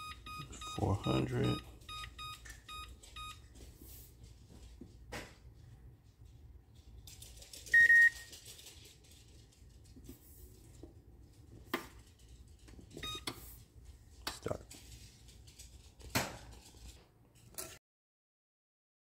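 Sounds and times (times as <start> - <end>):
oven control panel beeping: 0.0 - 3.4.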